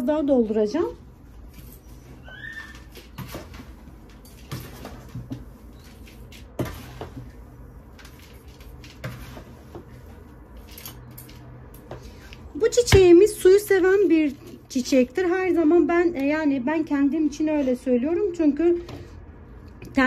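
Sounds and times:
light knocks and scrapes: 0:02.8 - 0:12.3.

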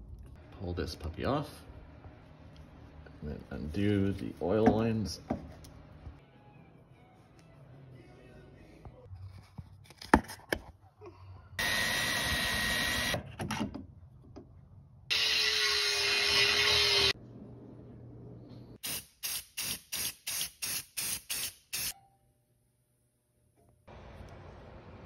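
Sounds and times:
power drill drilling: 0:11.6 - 0:13.2, 0:15.1 - 0:17.2
angle grinder grinding metal: 0:15.1 - 0:17.2.

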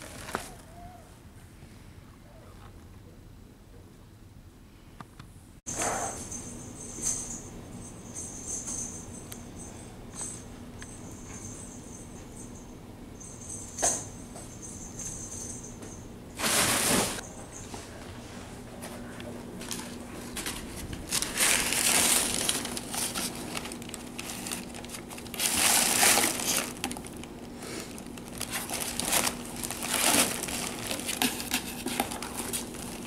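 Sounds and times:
packing material crinkling: 0:00.0 - 0:00.6, 0:19.6 - 0:33.0.

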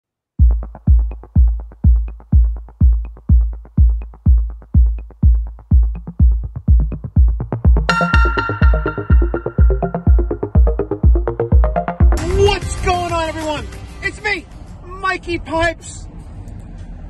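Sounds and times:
electronic music with kick drum: 0:00.4 - 0:12.4.

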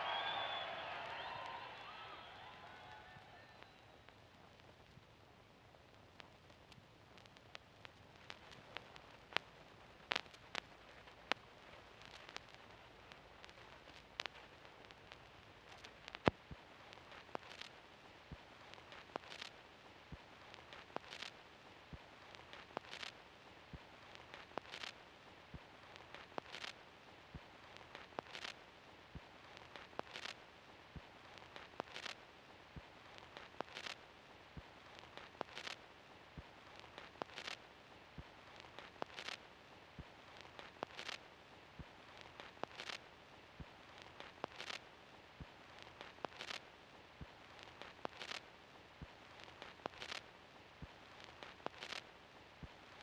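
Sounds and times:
vinyl surface hiss: 0:00.0 - 0:53.0
faint vinyl ticks: 0:02.3 - 0:53.0
record stylus clicks: 0:27.9 - 0:28.6, 0:35.2 - 0:35.8, 0:40.6 - 0:41.2, 0:42.4 - 0:43.0, 0:46.0 - 0:46.6, 0:47.8 - 0:48.4, 0:51.4 - 0:52.0.

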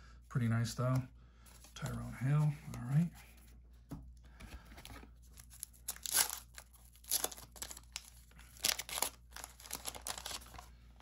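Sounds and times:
wrapper crinkling and tearing: 0:05.4 - 0:10.7.

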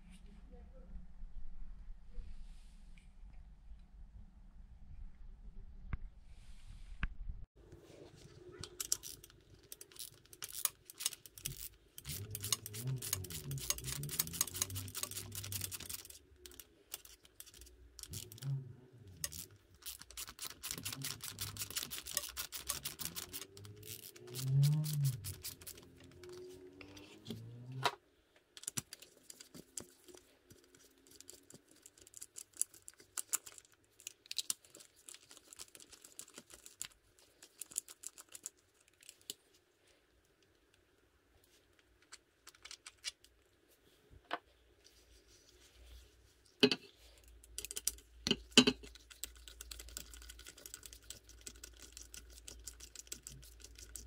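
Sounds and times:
rapid clicks and rattles of tools: 0:08.6 - 0:18.5, 0:19.2 - 0:26.4.

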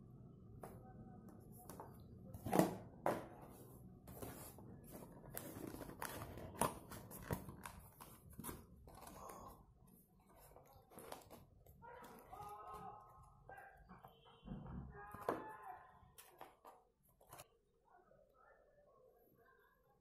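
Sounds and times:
cardboard rustling and scraping: 0:03.4 - 0:12.8.

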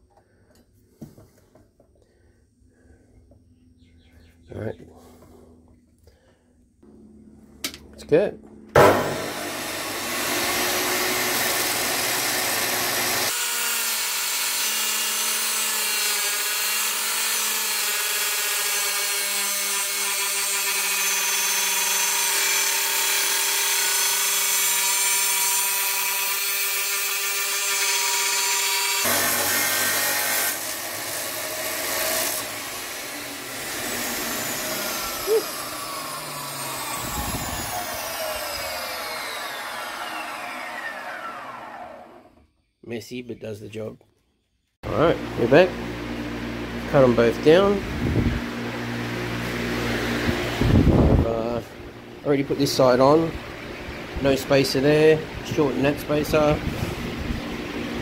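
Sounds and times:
saw motor winding down: 0:08.5 - 0:42.4
drop saw cutting: 0:08.7 - 0:15.5, 0:19.4 - 0:42.4.

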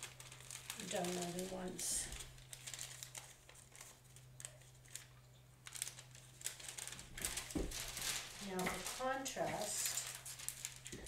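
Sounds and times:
low steady hum: 0:00.0 - 0:11.0
wax paper crinkling: 0:00.0 - 0:11.0.

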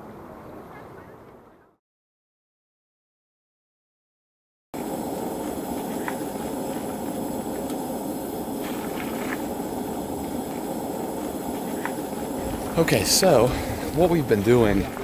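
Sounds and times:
gas burner hissing: 0:04.8 - 0:15.0.

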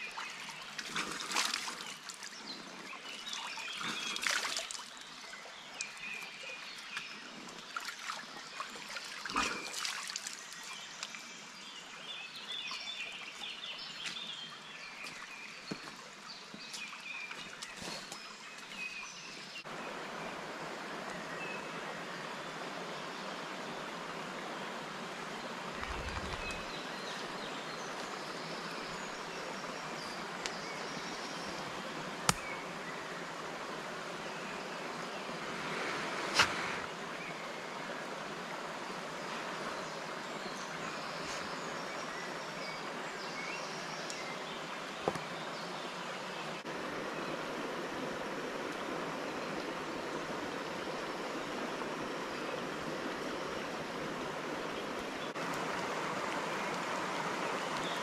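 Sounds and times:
water splashes: 0:00.0 - 0:11.4, 0:44.9 - 0:58.0
rush of running water: 0:00.0 - 0:58.0
stream trickling over stones: 0:00.0 - 0:58.0.

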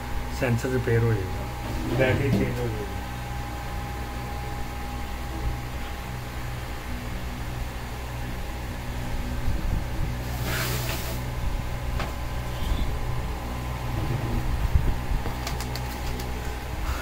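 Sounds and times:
low background hum: 0:00.0 - 0:17.0
brief hiss: 0:10.3 - 0:11.2.

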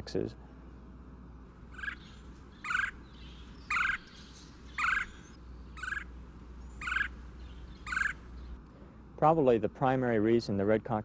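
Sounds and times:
woodpecker calling: 0:01.6 - 0:08.6.

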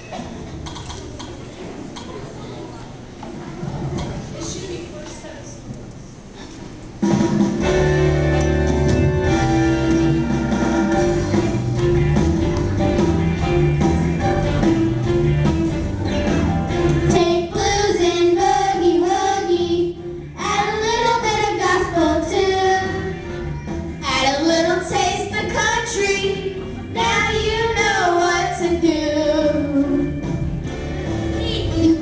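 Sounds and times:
instrumental accompaniment: 0:07.0 - 0:32.0
children's choir singing: 0:17.1 - 0:30.3.

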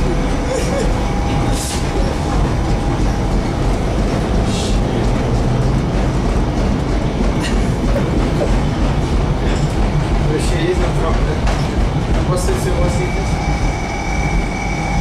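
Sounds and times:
tram wheels rumbling on rails: 0:00.0 - 0:15.0.

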